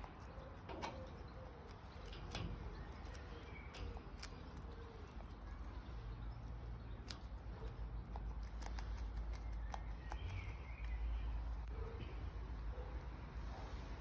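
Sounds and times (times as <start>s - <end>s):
beak pecking at a leafy stalk: 0.0s - 5.8s, 6.4s - 11.3s.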